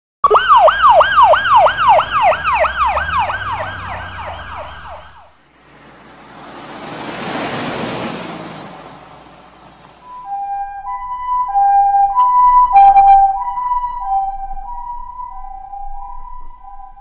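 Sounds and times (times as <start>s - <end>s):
police siren wailing: 0.2s - 5.5s, 10.0s - 17.0s
passing car whoosh: 1.0s - 12.8s.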